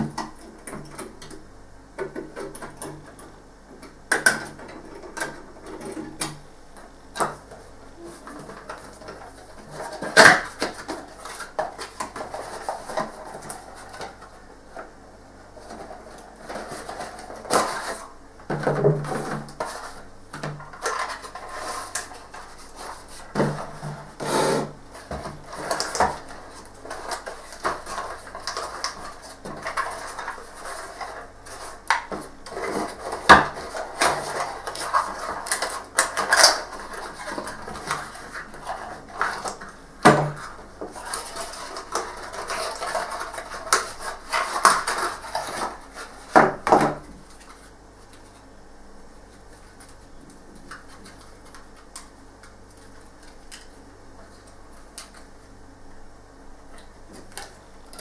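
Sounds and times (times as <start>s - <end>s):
packaging rustling: 24.9s - 46.6s.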